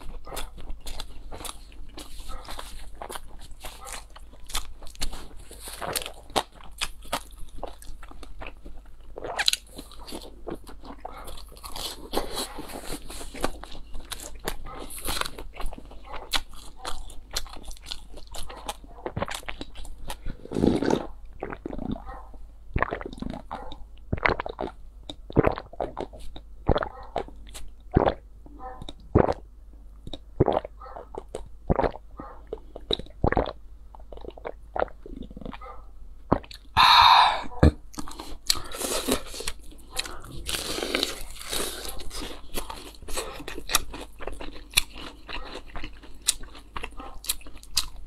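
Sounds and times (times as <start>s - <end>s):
crunchy bites and chewing: 0.0s - 28.2s, 30.0s - 35.7s, 36.3s - 48.0s
slurping drink from a bowl: 20.2s - 22.0s.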